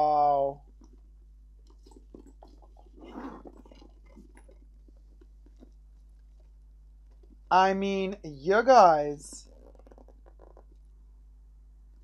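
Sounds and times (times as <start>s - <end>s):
zipper pulls ticking: 1.6s - 7.4s, 9.4s - 10.9s
backpack rustling: 1.8s - 4.5s.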